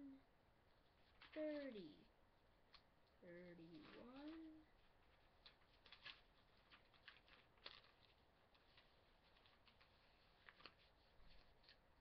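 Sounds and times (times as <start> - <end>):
binder pages clicking and rustling: 3.6 - 12.0.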